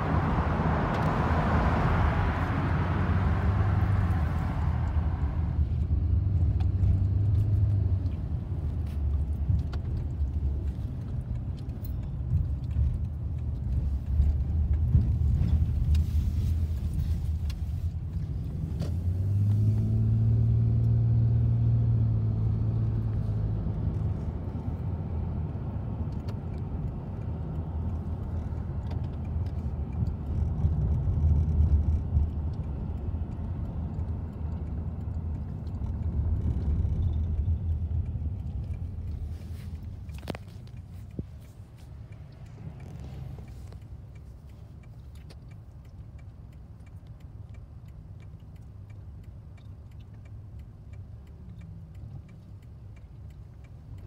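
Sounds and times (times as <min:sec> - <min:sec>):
car road noise: 0:00.0 - 0:54.0
engine rumble: 0:00.0 - 0:54.0.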